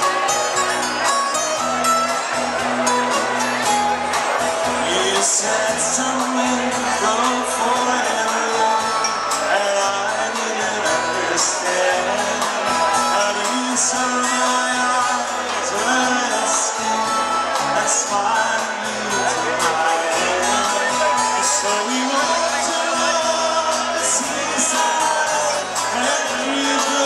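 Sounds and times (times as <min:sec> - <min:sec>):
live rock band: 0:00.0 - 0:27.0
man singing: 0:04.6 - 0:27.0.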